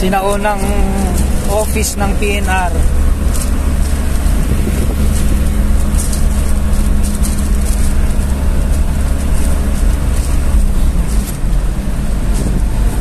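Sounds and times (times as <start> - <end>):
road hiss: 0.0 - 13.0
vehicle engine low rumble: 0.0 - 13.0.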